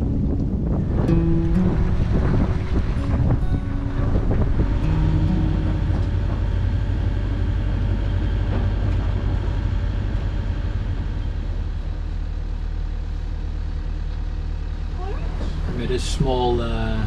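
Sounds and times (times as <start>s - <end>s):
wind buffeting microphone: 0.0s - 11.9s.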